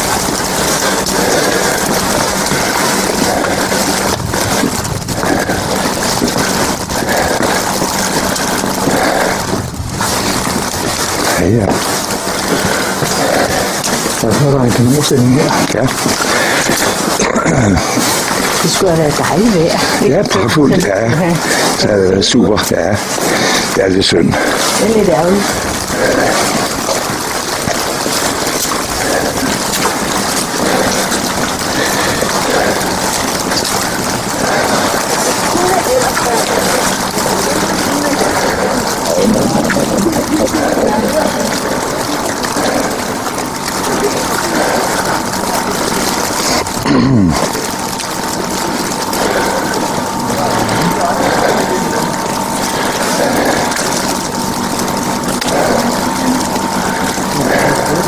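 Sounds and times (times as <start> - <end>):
sleet pattering on an umbrella: 0.0 - 20.0, 24.4 - 46.8.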